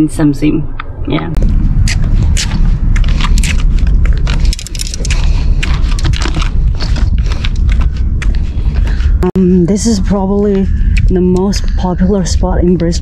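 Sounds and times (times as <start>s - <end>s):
wind buffeting microphone: 0.4s - 13.0s
gear clicks and knocks: 1.9s - 9.0s.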